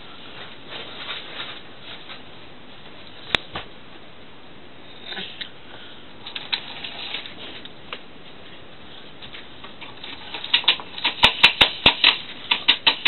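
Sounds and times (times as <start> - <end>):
sharp clicks and clacks: 9.7 - 13.0.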